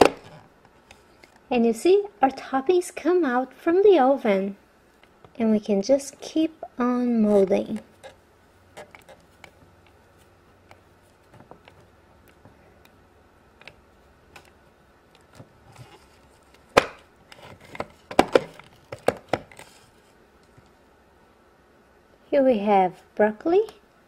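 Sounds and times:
sharp plastic knock: 0:16.8 - 0:17.0.

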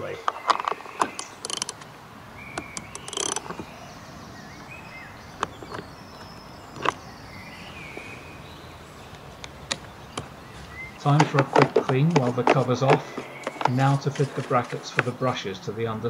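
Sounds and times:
bird chirps: 0:00.0 - 0:15.6
steady outdoor background: 0:00.0 - 0:16.0
socket ratchet clicking: 0:01.0 - 0:01.9, 0:02.6 - 0:03.6
single knocks: 0:11.0 - 0:14.2.

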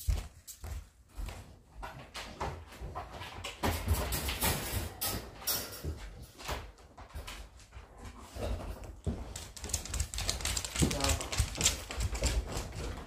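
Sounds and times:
people's footsteps: 0:00.0 - 0:03.5, 0:05.9 - 0:13.0
dog claws clicking on hard floor: 0:08.6 - 0:13.0.

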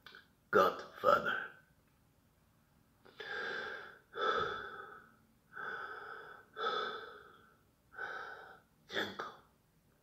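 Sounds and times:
man breathing with rasping gasps: 0:03.1 - 0:08.7.

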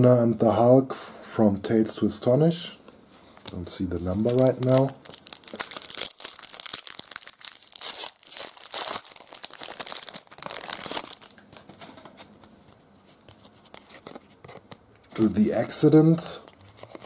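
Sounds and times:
handling of cards: 0:03.3 - 0:17.0
foil pack tearing and crinkling: 0:04.1 - 0:11.8.

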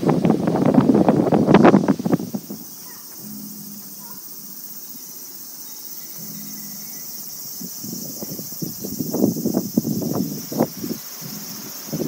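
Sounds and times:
wind buffeting microphone: 0:00.0 - 0:03.4, 0:07.2 - 0:12.0
insects chirring in trees: 0:00.0 - 0:12.0.

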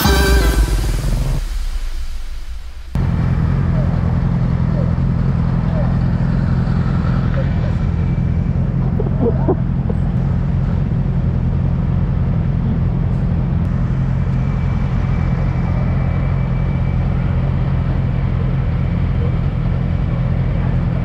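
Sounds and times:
motorcycle engine running: 0:02.8 - 0:21.0
faint high whine: 0:13.7 - 0:19.8.

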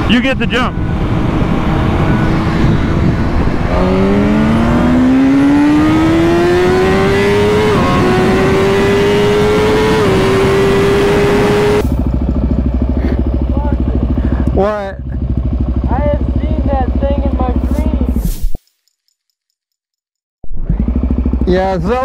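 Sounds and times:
wind rush: 0:00.0 - 0:12.0
motorcycle engine revving hard: 0:00.0 - 0:18.2, 0:20.5 - 0:22.0.

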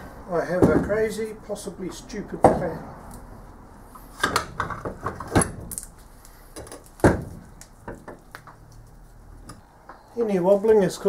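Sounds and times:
metal casting clunks and rattles: 0:00.5 - 0:01.2, 0:04.2 - 0:05.8, 0:06.6 - 0:08.2.

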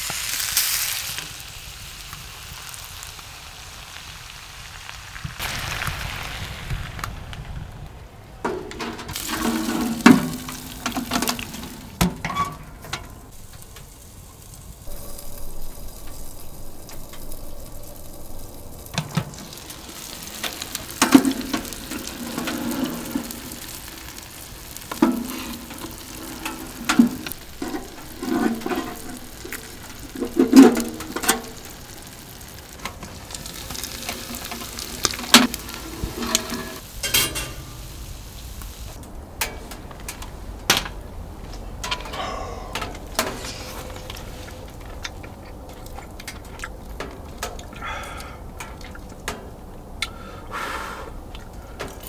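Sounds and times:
food sizzling in a pan: 0:00.0 - 0:07.0, 0:09.1 - 0:12.0, 0:13.3 - 0:39.0
utensil stirring and scraping: 0:24.9 - 0:31.5.

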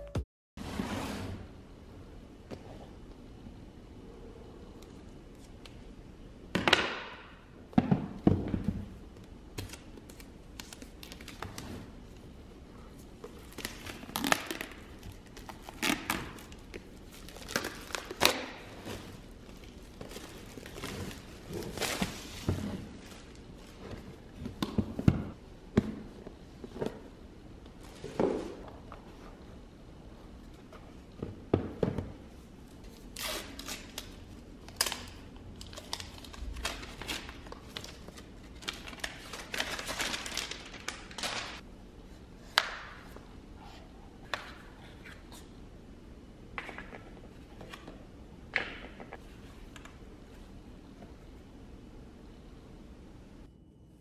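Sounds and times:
wrapping crinkling and tearing: 0:33.1 - 0:41.6.

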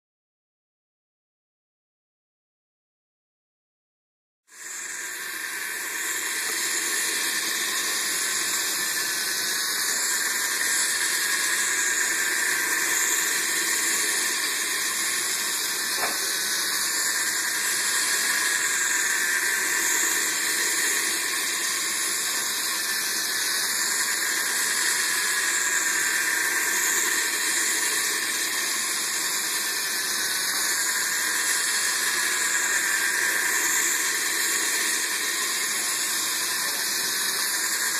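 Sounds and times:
toy train motor whirring: 0:04.5 - 0:37.9.

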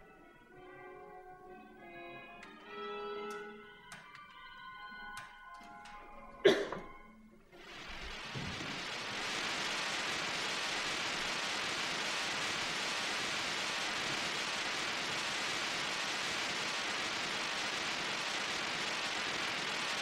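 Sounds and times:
steady hiss of noise: 0:07.2 - 0:20.0.

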